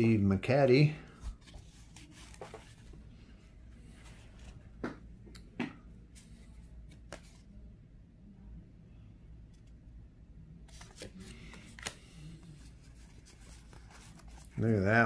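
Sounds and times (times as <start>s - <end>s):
cardboard cards rustling: 1.1s - 3.0s, 6.2s - 7.6s, 10.7s - 15.0s
soft card clicks: 10.7s - 12.2s.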